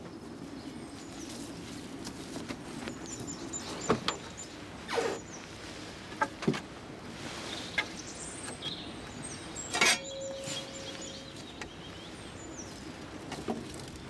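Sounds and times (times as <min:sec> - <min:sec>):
birds chirping: 0:00.0 - 0:14.0
steady outdoor hiss: 0:00.0 - 0:14.0
brief steady tone: 0:09.8 - 0:11.4.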